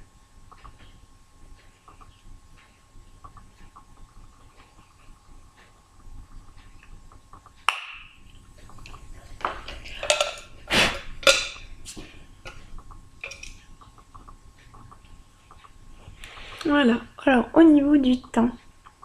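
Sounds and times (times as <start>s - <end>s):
knocks and clinks: 10.0s - 10.6s.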